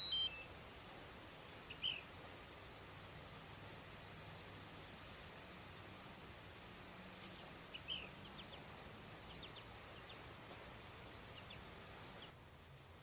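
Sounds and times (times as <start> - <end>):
small bird chirping: 0.0 - 0.9, 1.6 - 2.1, 6.9 - 10.4, 11.2 - 12.7
steady outdoor hiss: 0.0 - 13.0.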